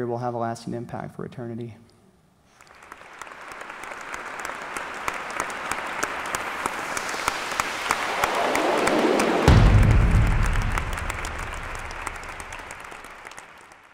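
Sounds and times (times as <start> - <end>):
audience applause: 2.6 - 13.9
deep low sound: 9.5 - 12.7.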